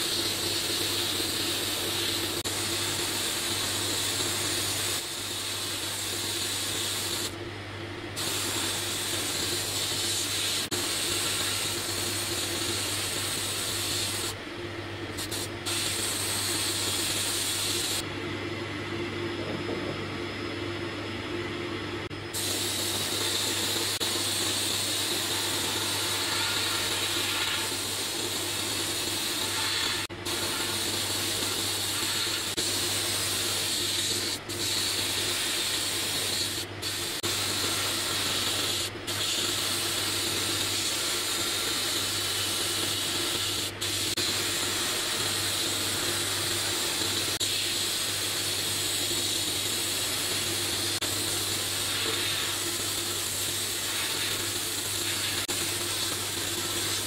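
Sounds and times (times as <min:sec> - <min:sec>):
sandblasting gun hissing: 0:00.0 - 0:07.4, 0:08.2 - 0:14.4, 0:15.1 - 0:18.0, 0:22.3 - 0:57.0.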